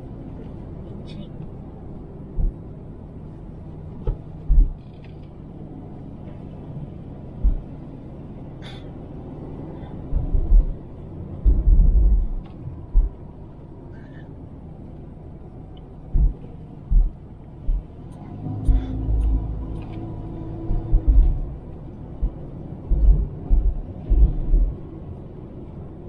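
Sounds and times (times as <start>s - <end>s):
engine and tyre rumble: 0.0s - 26.0s
heavy low thumps: 2.3s - 2.6s, 4.1s - 4.8s, 7.4s - 7.8s, 10.1s - 10.8s, 11.4s - 13.3s, 16.0s - 18.0s, 18.6s - 19.4s, 20.4s - 24.9s.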